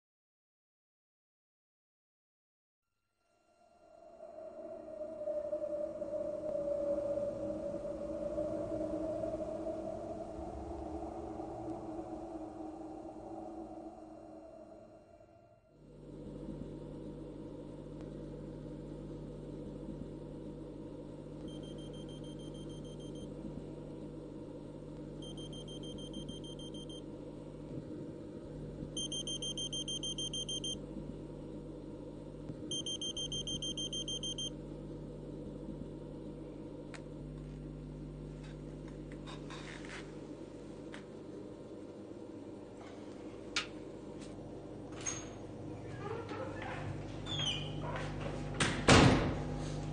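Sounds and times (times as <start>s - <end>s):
low room hum: 3.3s - 49.9s
alarm clock beeping: 21.5s - 23.3s, 25.2s - 27.0s, 29.0s - 30.8s, 32.7s - 34.5s.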